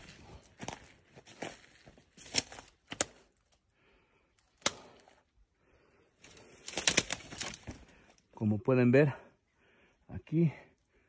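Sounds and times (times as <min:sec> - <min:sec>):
footsteps crunching on forest floor: 0:00.0 - 0:03.6, 0:06.2 - 0:08.2
twigs snapping: 0:02.2 - 0:03.6, 0:04.4 - 0:05.2, 0:06.2 - 0:08.1.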